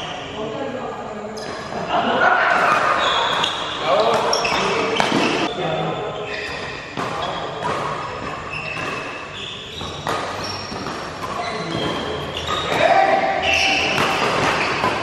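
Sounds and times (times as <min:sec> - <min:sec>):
sneakers squeaking on floor: 0:00.0 - 0:00.6, 0:01.3 - 0:15.0
racket striking shuttlecock: 0:02.5 - 0:05.5, 0:06.4 - 0:15.0.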